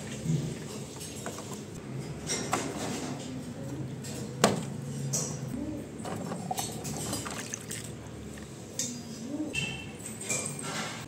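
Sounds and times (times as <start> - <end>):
water splashing into steel basin: 6.9 - 8.0.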